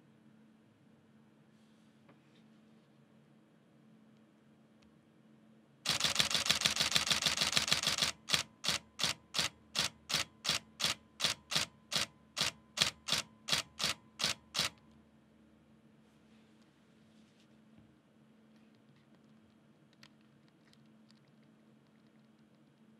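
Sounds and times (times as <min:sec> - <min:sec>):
camera shutter burst: 0:05.9 - 0:14.8.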